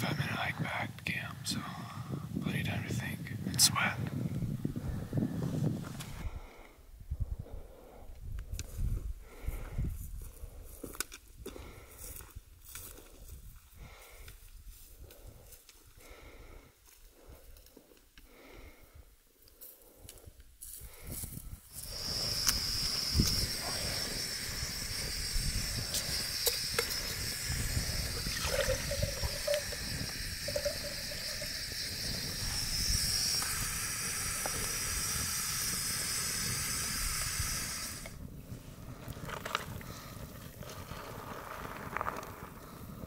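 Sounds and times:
gas stove hissing: 21.7s - 38.2s
water pouring into pouch: 21.8s - 35.0s.

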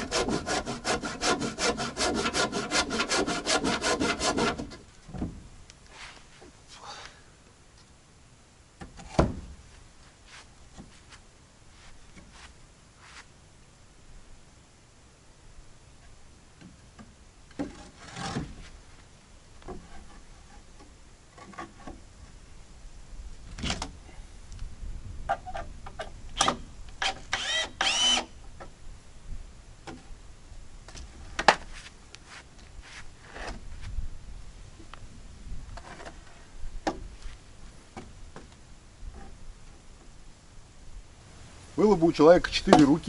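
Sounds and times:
wood knocks and clatter: 4.6s - 5.5s
small power tool whirring: 26.4s - 28.3s.

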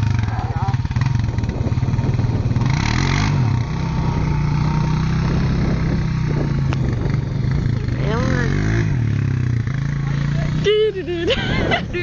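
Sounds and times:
quad bike engine revving: 0.0s - 12.0s.

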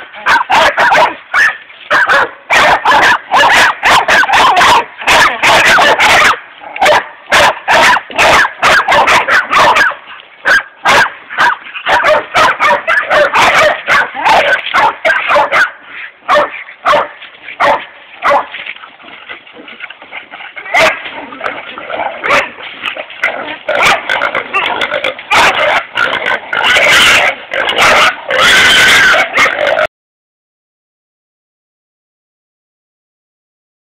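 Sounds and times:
dogs barking fast: 0.0s - 18.6s, 20.0s - 29.9s.

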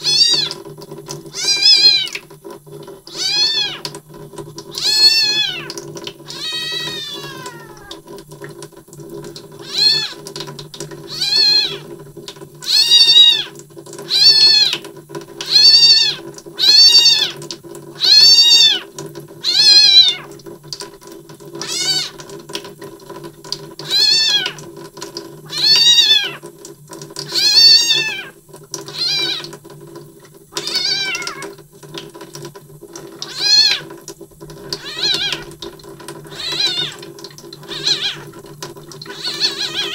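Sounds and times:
kitten meowing: 0.0s - 0.6s, 1.4s - 2.2s, 3.1s - 3.8s, 4.8s - 8.0s, 9.6s - 10.2s, 11.1s - 11.8s, 12.7s - 13.5s, 14.1s - 14.8s, 15.5s - 17.4s, 18.0s - 20.3s, 21.6s - 22.2s, 23.9s - 24.6s, 25.5s - 26.4s, 27.3s - 28.3s, 29.0s - 29.5s, 30.6s - 31.5s, 33.2s - 33.9s, 34.8s - 35.5s, 36.3s - 37.0s, 37.6s - 38.3s, 39.1s - 39.9s.

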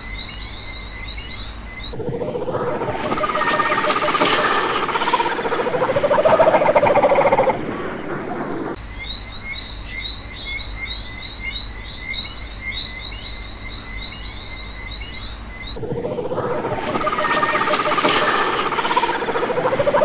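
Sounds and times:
low hum: 1.9s - 8.8s, 15.8s - 20.0s
thin high whine: 1.9s - 8.8s, 15.8s - 20.0s
loud noisy sound: 2.0s - 8.8s, 15.8s - 20.0s
steady mid-pitched tones: 2.0s - 8.8s, 15.8s - 20.0s.

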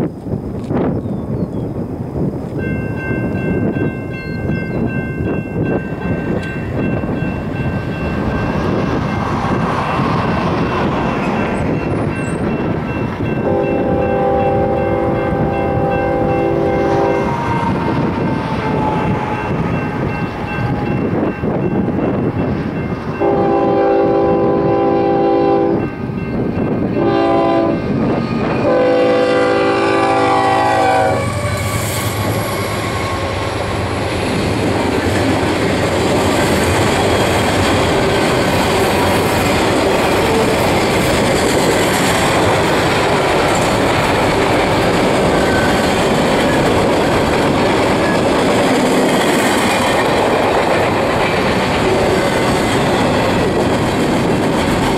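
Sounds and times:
locomotive engines passing: 3.5s - 54.9s
locomotive air horn blasts: 13.4s - 17.4s, 23.2s - 25.9s, 27.0s - 27.9s, 28.6s - 31.6s
train wheels clacking over rail joints: 34.0s - 54.9s.

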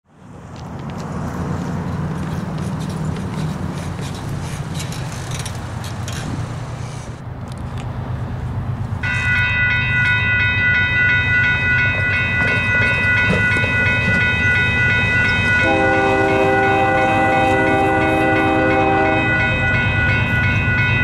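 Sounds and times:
crossing warning bell ringing: 9.0s - 21.0s.

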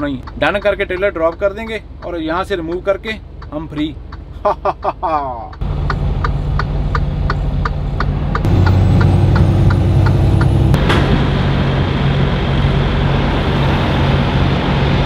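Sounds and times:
steady ticking: 0.0s - 10.7s
truck engine running: 0.0s - 15.0s.

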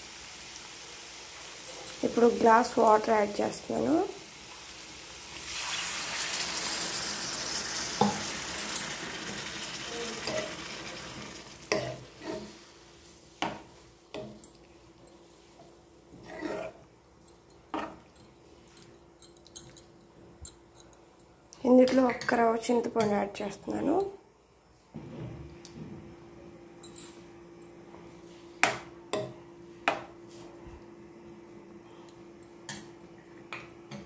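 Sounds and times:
water sizzling in hot pan: 0.0s - 13.0s.

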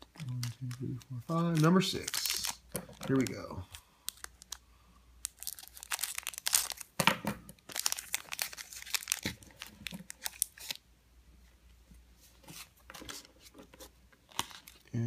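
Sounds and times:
foil wrapper crinkling: 0.0s - 4.6s, 5.2s - 7.0s, 7.6s - 10.8s.

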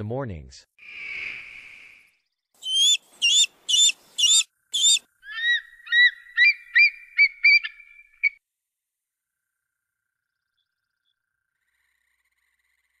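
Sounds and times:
eagle calling whistled notes: 2.6s - 8.4s.

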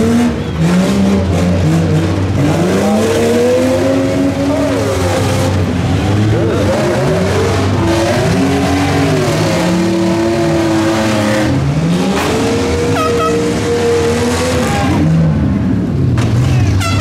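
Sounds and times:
engines revving: 0.0s - 17.0s.

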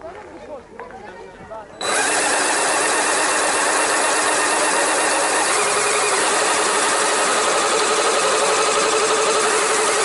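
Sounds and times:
electric motors and gears running: 1.8s - 10.0s
steady motor whine: 1.8s - 10.0s.

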